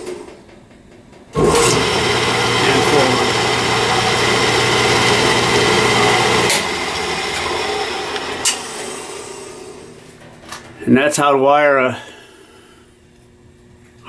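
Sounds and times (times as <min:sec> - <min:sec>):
electric motor hum and whine: 0:01.4 - 0:10.8.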